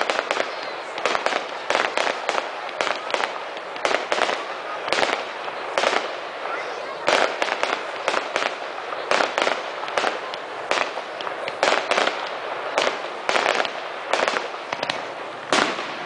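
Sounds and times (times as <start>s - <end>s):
steady background hiss: 0.0s - 16.0s
firework shells bursting: 7.0s - 16.0s.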